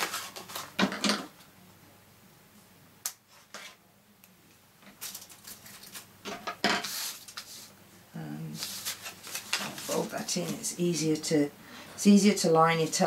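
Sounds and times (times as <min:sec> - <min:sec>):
paper rustling: 0:00.0 - 0:01.0, 0:04.9 - 0:06.1, 0:06.8 - 0:07.7, 0:08.5 - 0:10.8.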